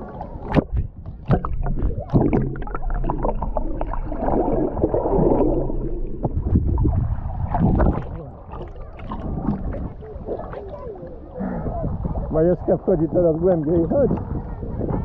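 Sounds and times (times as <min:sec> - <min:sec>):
water splash: 0:00.0 - 0:10.9
muffled underwater rumbling: 0:00.0 - 0:15.0
underwater bubbling: 0:00.0 - 0:15.0.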